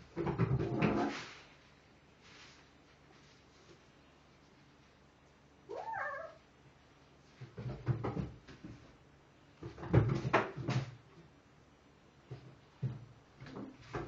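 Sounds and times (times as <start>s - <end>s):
kitten meowing: 5.7s - 6.4s.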